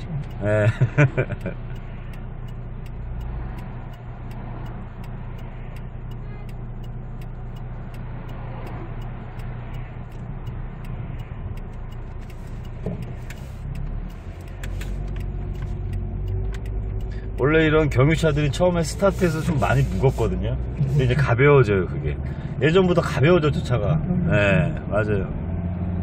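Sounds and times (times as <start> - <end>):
faint repeating ticking: 0.0 - 20.3
car engine drone and road noise: 0.0 - 26.0.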